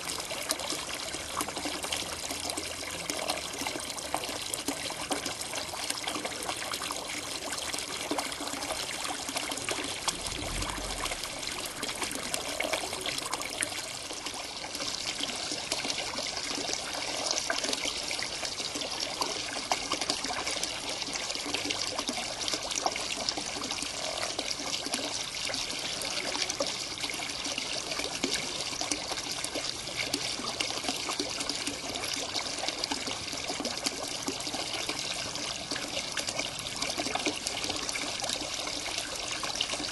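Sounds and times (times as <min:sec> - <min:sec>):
water trickling into pond: 0:00.0 - 0:39.9
low thump: 0:10.0 - 0:12.4.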